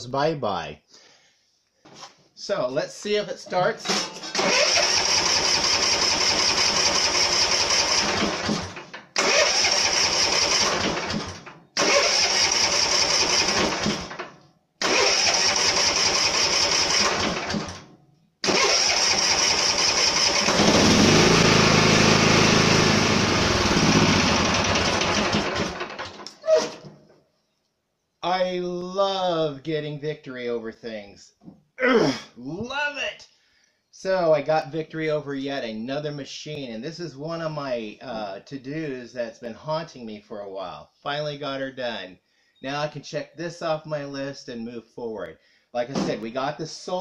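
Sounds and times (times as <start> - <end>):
mower engine running: 4.3 - 14.2, 14.8 - 17.8, 18.4 - 26.2
electric starter cranking engine: 4.3 - 26.4.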